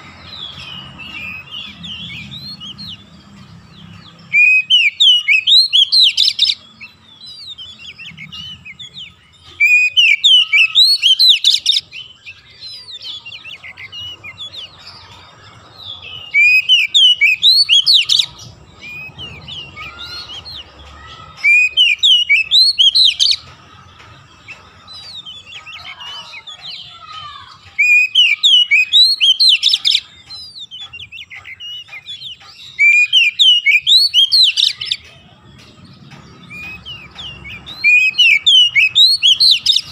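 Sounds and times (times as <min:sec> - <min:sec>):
bird singing high notes: 0:00.0 - 0:15.2, 0:25.0 - 0:35.0, 0:36.4 - 0:39.9.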